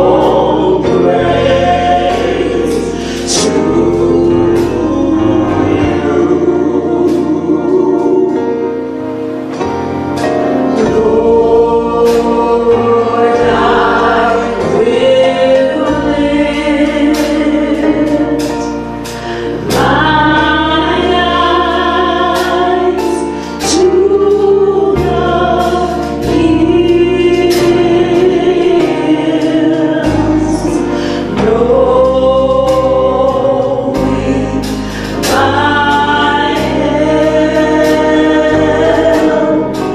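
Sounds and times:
low sustained bass notes: 0:00.0 - 0:39.9
vocal group singing in harmony: 0:00.0 - 0:39.9.

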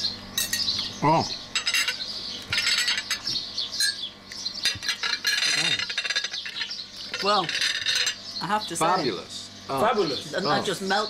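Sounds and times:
cutlery clinking on plates: 0:01.6 - 0:04.0, 0:04.6 - 0:08.2.

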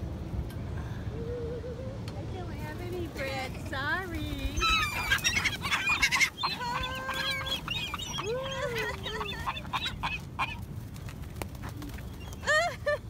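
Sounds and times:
gulls squawking: 0:03.3 - 0:10.7.

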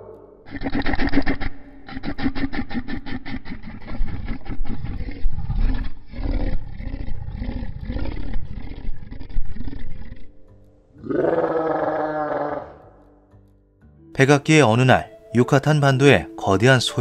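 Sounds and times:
deep animal rumble call: 0:00.0 - 0:10.4, 0:11.0 - 0:13.0.

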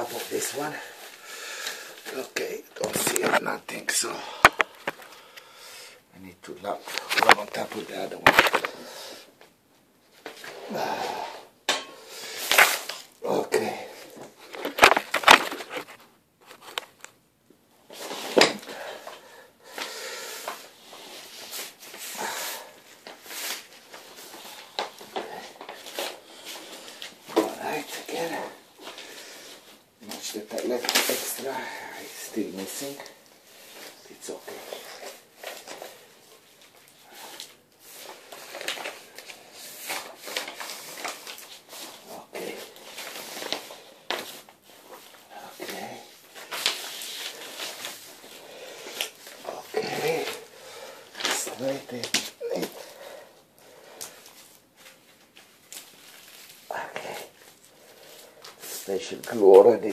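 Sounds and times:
plastic film crinkling and rustling: 0:02.0 - 0:05.3, 0:06.6 - 0:09.1, 0:12.2 - 0:17.2, 0:20.4 - 0:59.9.

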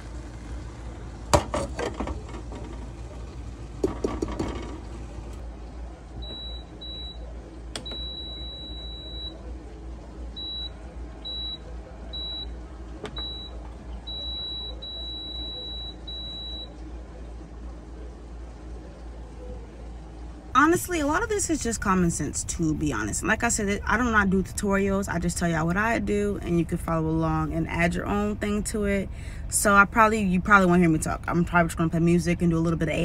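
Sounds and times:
longer beeps: 0:06.2 - 0:09.4.

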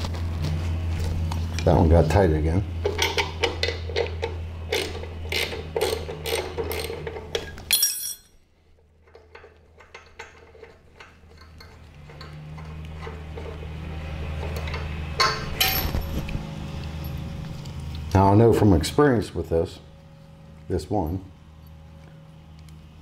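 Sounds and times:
ratcheting wrench clicking: 0:04.7 - 0:07.5.

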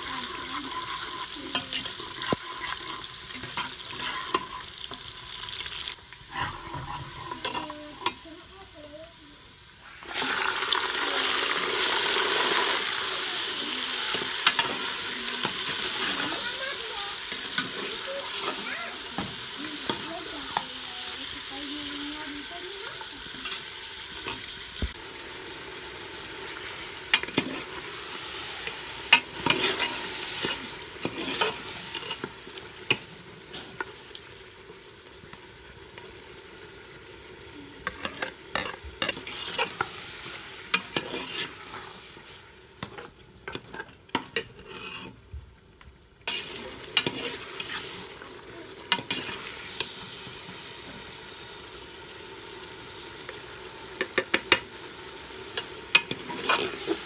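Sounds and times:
meat sizzling in oil: 0:00.0 - 0:57.0
ladle scraping metal pot: 0:00.7 - 0:05.1, 0:06.3 - 0:08.2, 0:27.1 - 0:33.9, 0:37.8 - 0:41.9, 0:42.8 - 0:45.2, 0:46.3 - 0:48.2, 0:48.9 - 0:50.0, 0:55.6 - 0:57.0.

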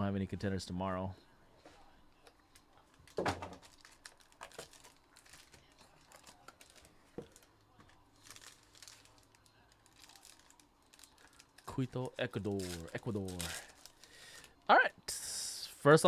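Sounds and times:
foil wrapping crinkling and tearing: 0:02.9 - 0:14.6.

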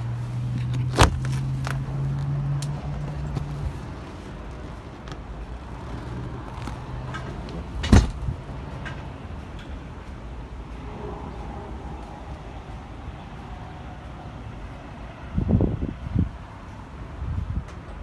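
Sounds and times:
seat lid knocking shut: 0:07.8 - 0:08.2.

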